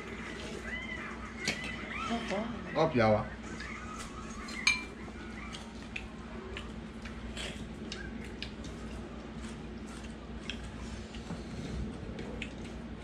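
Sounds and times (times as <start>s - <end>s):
steady low hum: 0.0s - 13.0s
eating clicks and squishing: 5.1s - 11.3s, 12.0s - 13.0s.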